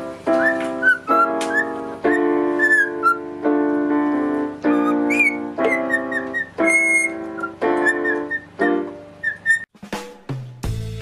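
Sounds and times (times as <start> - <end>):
electronic keyboard chords: 0.0 - 9.2
cockatiel whistling chirps: 0.3 - 3.2, 4.7 - 9.7.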